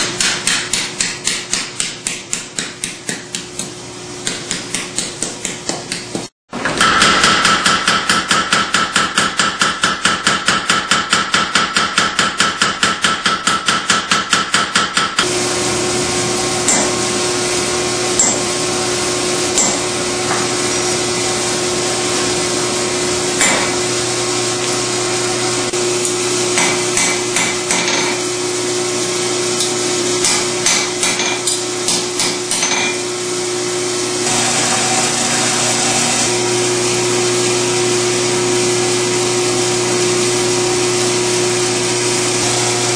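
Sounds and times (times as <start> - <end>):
power hammer pounding steel: 0.0 - 15.3, 16.6 - 17.1, 18.1 - 18.5, 19.5 - 20.5, 23.4 - 23.9, 26.5 - 28.3, 30.2 - 33.1
machine hum: 15.2 - 42.9.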